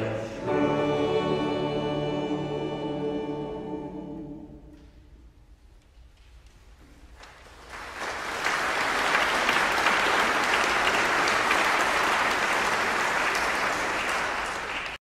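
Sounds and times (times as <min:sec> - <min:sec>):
audience applauding: 0:07.2 - 0:15.0.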